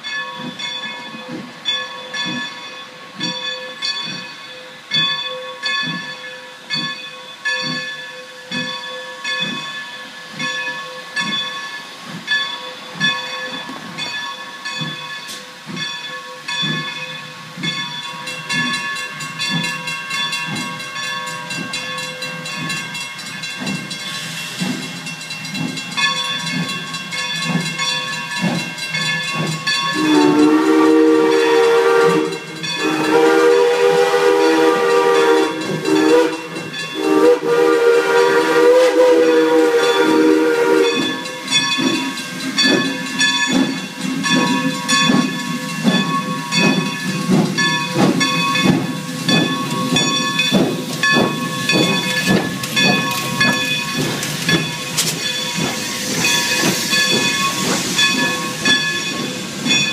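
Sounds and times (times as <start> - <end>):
level-crossing bell ringing: 0.0 - 24.3, 25.0 - 37.5, 38.3 - 59.9
hissing steam: 0.2 - 59.9
steam whistle blasts: 29.9 - 41.2.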